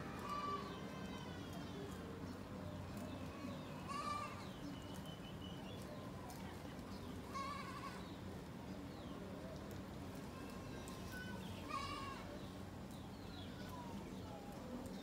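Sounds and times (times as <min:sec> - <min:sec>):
goat bleating: 0:10.3 - 0:12.3.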